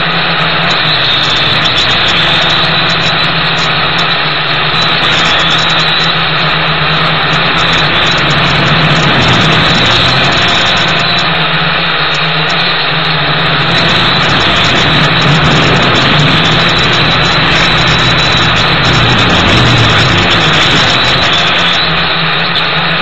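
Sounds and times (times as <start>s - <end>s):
wind noise on microphone: 0.0s - 23.0s
toy drone motors buzzing: 0.6s - 11.6s, 13.4s - 22.6s.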